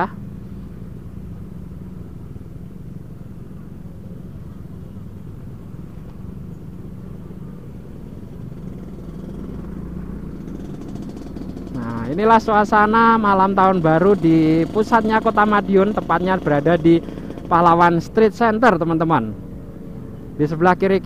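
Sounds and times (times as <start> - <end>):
traffic of motorbikes and cars: 0.0 - 21.0
motorcycle engine running: 0.1 - 21.0.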